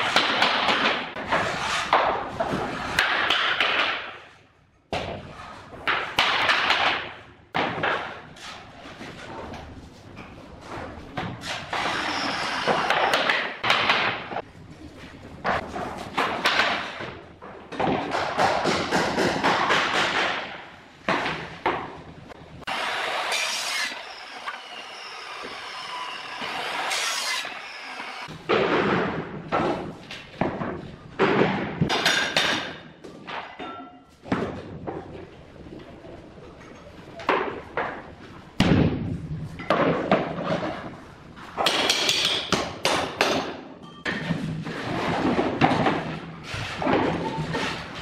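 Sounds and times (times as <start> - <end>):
floor planks scraping: 1.1 - 3.2, 44.2 - 48.0.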